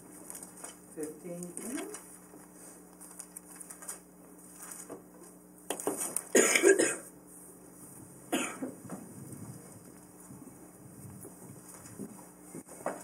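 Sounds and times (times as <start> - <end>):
person clearing throat: 6.3 - 7.1, 8.3 - 8.8
person coughing: 6.3 - 7.1, 8.3 - 8.8.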